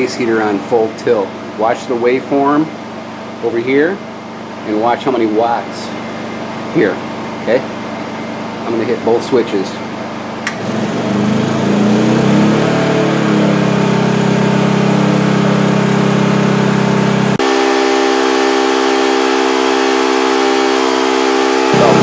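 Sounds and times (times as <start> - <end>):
generator engine revving: 10.4 - 22.0.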